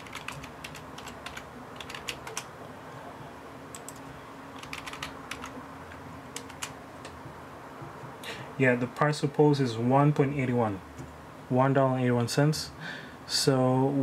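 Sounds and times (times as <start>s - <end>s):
keyboard typing clicks: 0.0s - 2.5s, 3.7s - 5.5s, 6.3s - 7.2s
faint steady hum: 0.0s - 14.0s.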